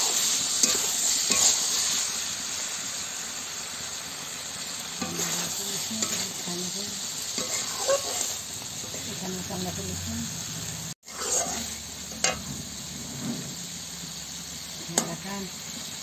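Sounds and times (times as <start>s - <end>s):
spatula scraping a pan: 0.0s - 2.0s, 5.0s - 6.5s, 7.3s - 9.2s, 11.0s - 13.6s
meat sizzling in a pan: 0.0s - 16.0s.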